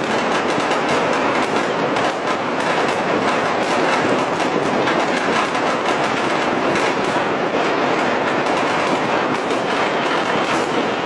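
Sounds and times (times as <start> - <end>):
firecrackers crackling: 0.0 - 11.0.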